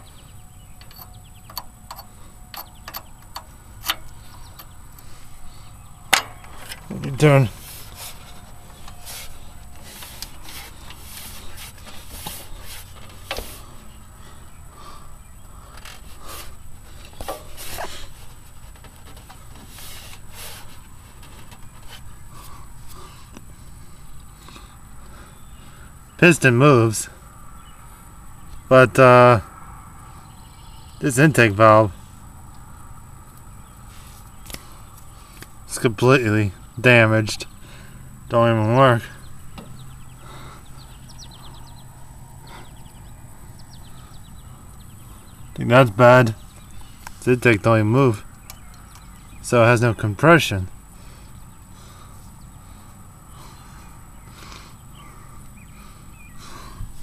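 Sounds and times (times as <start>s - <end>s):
birds chirping: 0.0s - 57.0s
low steady hum: 0.0s - 57.0s
rubbing and scraping noises: 2.6s - 14.0s, 15.6s - 23.9s.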